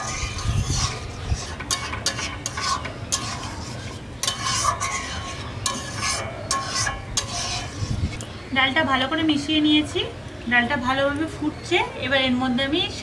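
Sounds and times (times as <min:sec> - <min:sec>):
metal spoon scraping a pot: 0:00.0 - 0:08.3.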